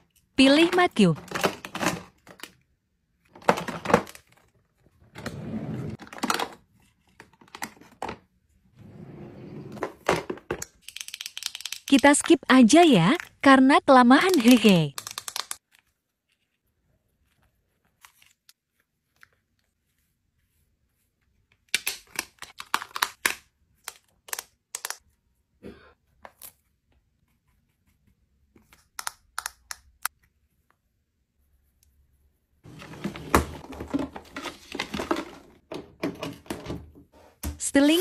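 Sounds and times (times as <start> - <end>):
drawer sliding open: 5.1 - 6.0, 8.8 - 10.0, 32.7 - 37.4
clicks and taps of compacts: 21.8 - 25.0.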